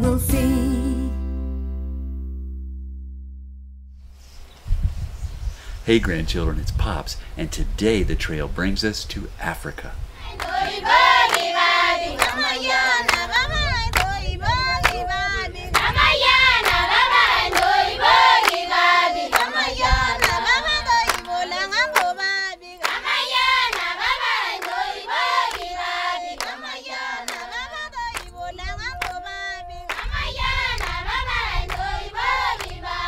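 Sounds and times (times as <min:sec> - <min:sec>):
women singing in chorus: 0:10.2 - 0:33.0
rhythmic hand clapping: 0:10.4 - 0:16.0, 0:16.6 - 0:33.0.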